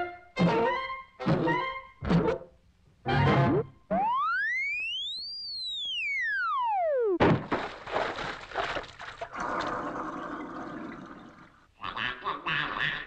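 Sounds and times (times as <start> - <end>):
descending cartoon whistle: 3.5 - 7.2
big water splash: 7.2 - 9.7.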